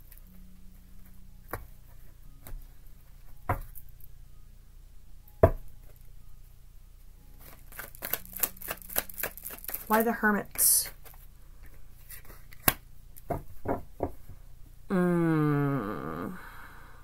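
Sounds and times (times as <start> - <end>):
cards shuffling: 7.4 - 13.3.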